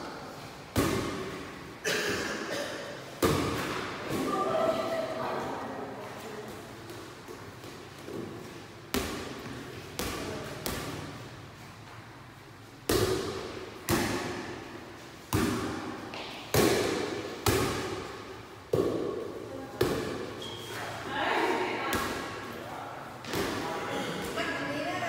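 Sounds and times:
volleyball slaps echoing: 0:00.7 - 0:01.7, 0:03.1 - 0:04.6, 0:06.9 - 0:11.2, 0:12.8 - 0:20.4, 0:21.4 - 0:22.6, 0:23.2 - 0:24.4.

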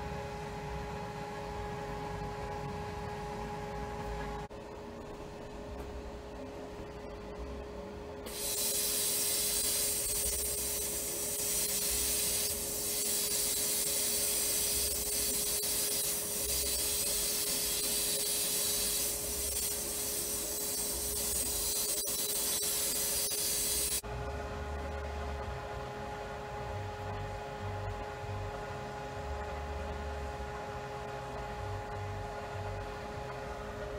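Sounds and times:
sandblast hiss of air and grit: 0:08.3 - 0:24.0.

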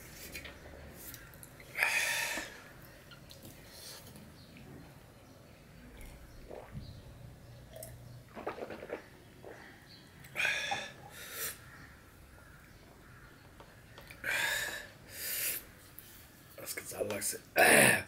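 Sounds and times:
man gulping water: 0:06.0 - 0:07.0, 0:07.7 - 0:09.6.

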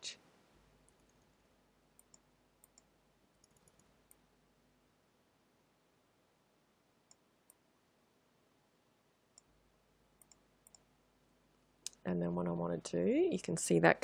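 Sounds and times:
faint computer mouse clicks: 0:02.0 - 0:04.2, 0:10.2 - 0:10.8.

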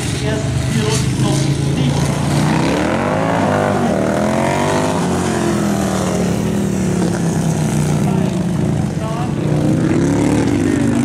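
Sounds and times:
motorcycle engines accelerating: 0:00.0 - 0:11.0.

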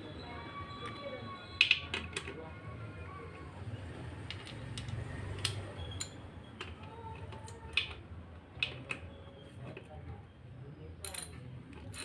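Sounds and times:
light metallic clicks and clinks: 0:04.2 - 0:08.0, 0:11.0 - 0:12.0.

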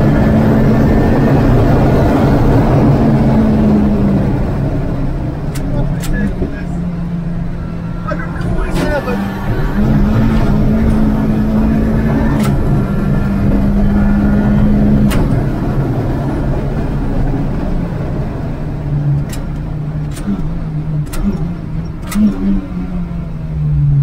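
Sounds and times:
turbocharged car engine: 0:00.0 - 0:24.0
gear shifter clicks: 0:05.4 - 0:06.6, 0:12.0 - 0:13.6, 0:19.1 - 0:22.6.

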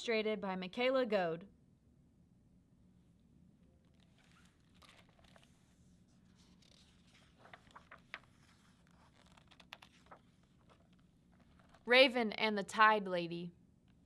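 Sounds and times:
book pages turning: 0:03.8 - 0:11.9.

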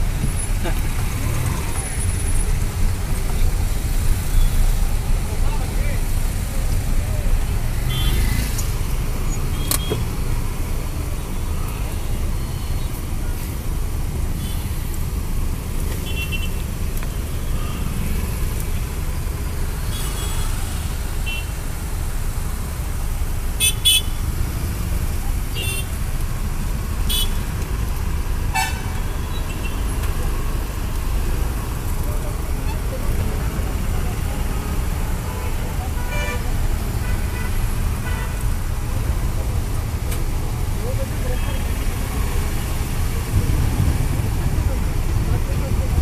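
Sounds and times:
engine and road rumble: 0:00.0 - 0:46.0
car horn toots: 0:28.5 - 0:29.0.

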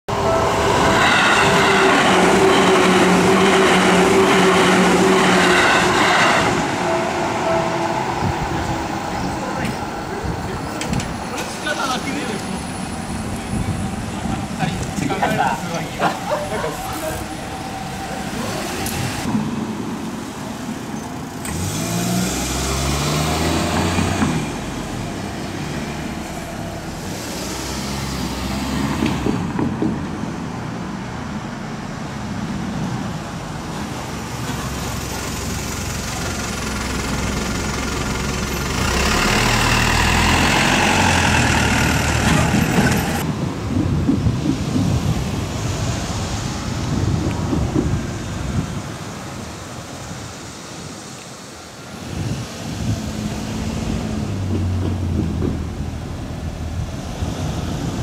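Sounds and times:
cars going by: 0:00.1 - 0:58.0
car engine speeding up: 0:21.5 - 0:24.8, 0:38.7 - 0:43.2.

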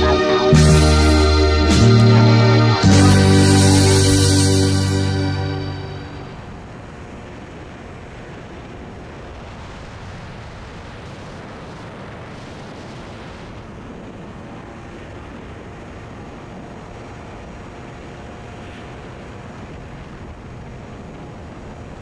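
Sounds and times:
motorbike road and engine noise: 0:05.9 - 0:10.6, 0:11.3 - 0:22.0.

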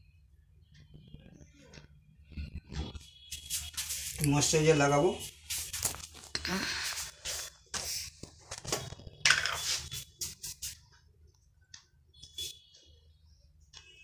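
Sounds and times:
rubbing and scraping handling noises: 0:02.8 - 0:10.8.

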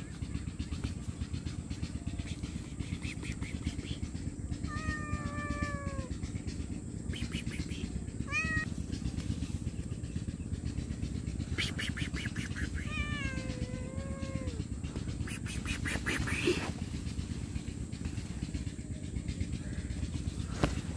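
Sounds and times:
cat meowing: 0:04.6 - 0:06.1, 0:08.2 - 0:08.7, 0:12.8 - 0:14.6.

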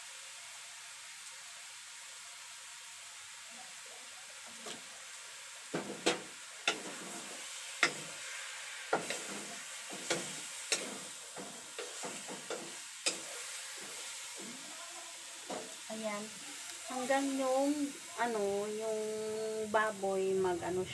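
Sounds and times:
faint sizzle: 0:00.0 - 0:20.9
wooden spatula scraping a pan: 0:05.8 - 0:14.7.

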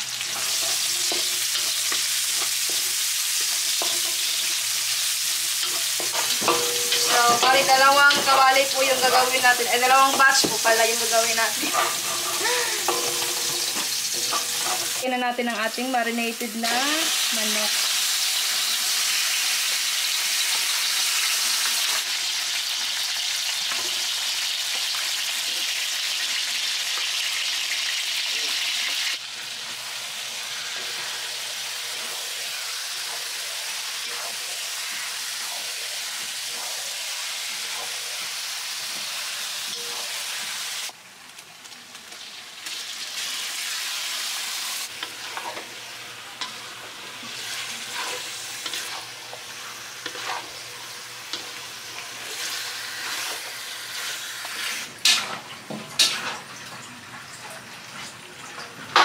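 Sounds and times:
chicken sizzling in hot oil: 0:00.0 - 0:59.0
spatula scraping a wok: 0:00.2 - 0:15.7, 0:28.4 - 0:40.9, 0:42.7 - 0:56.5.

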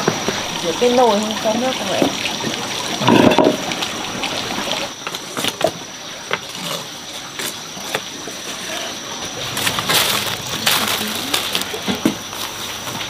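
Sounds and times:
water splashing and rushing: 0:00.0 - 0:13.0
pot or utensils knocking: 0:03.0 - 0:03.6.

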